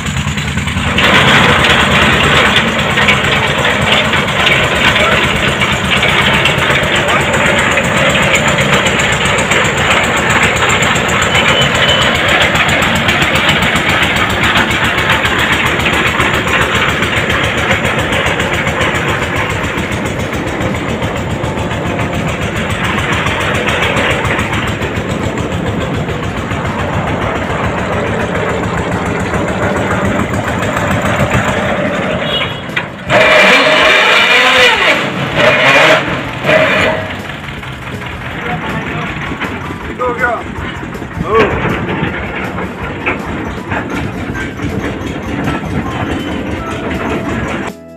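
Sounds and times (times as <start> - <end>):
drilling rig engine running: 0.0 - 47.9
wavering pitch sound: 44.3 - 47.9.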